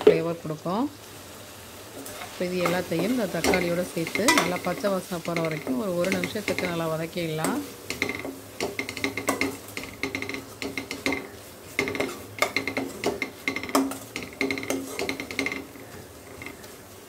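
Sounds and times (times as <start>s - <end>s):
metal spatula scraping a pan: 5.7s - 16.8s.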